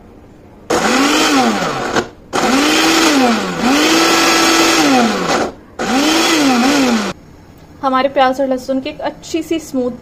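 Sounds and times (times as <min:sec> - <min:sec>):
blender motor whining: 0:00.7 - 0:07.2.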